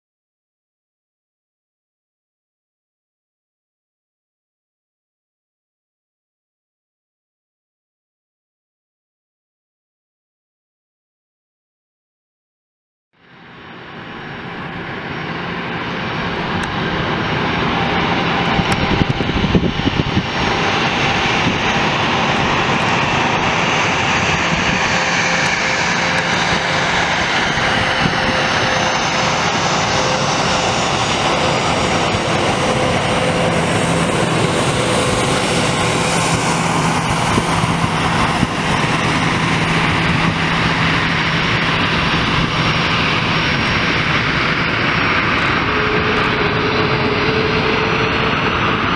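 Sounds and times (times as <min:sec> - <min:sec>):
faint jet engine whine: 0:13.2 - 0:48.9
jet engines rushing: 0:13.2 - 0:48.9.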